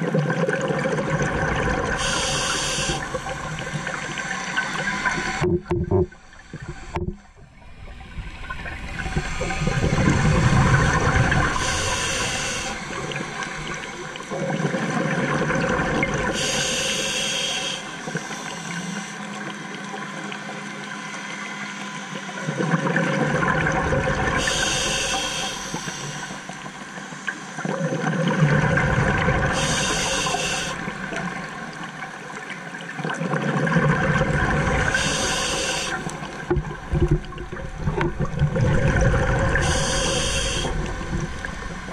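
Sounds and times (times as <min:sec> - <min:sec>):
exhaled bubbles rumbling: 0:00.0 - 0:02.2, 0:02.8 - 0:16.4, 0:22.4 - 0:24.5, 0:27.6 - 0:29.6, 0:33.0 - 0:35.3, 0:36.0 - 0:41.9
regulator inhale hiss: 0:02.0 - 0:05.4, 0:09.1 - 0:13.8, 0:16.3 - 0:19.3, 0:24.4 - 0:26.6, 0:29.5 - 0:31.1, 0:34.8 - 0:36.3, 0:39.6 - 0:41.9.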